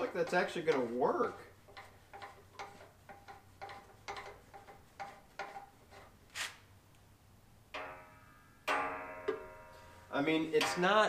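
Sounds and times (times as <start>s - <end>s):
short swish: 6.3s - 6.6s.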